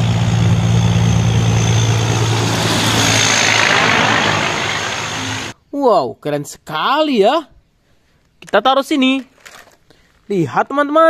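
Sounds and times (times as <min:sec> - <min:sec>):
truck engine drone: 0:00.0 - 0:05.5
tyre and road noise: 0:00.0 - 0:05.5.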